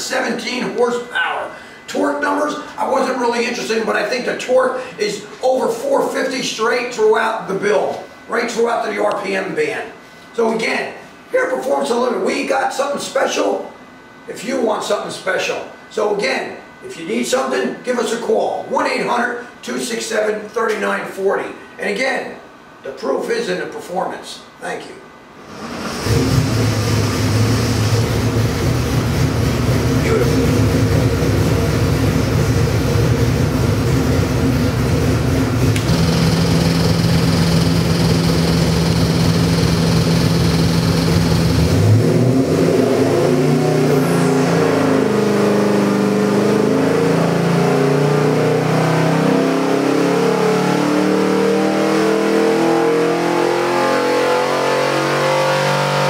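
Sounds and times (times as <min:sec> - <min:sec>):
engine revving on dynamometer: 0:25.4 - 0:56.0.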